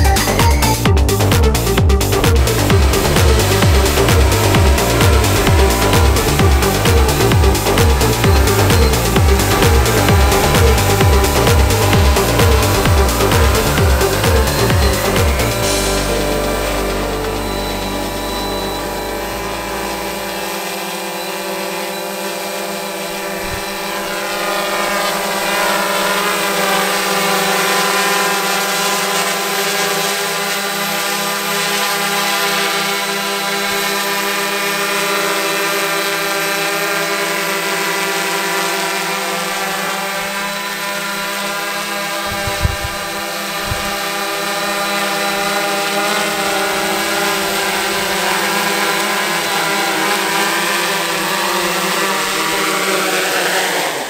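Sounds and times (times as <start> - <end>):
drone motors humming: 0.0 - 54.0
low thumps: 0.9 - 20.8.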